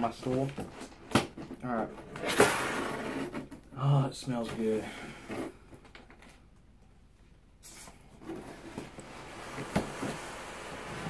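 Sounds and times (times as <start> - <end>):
cardboard box rustling and sliding: 7.8 - 11.0.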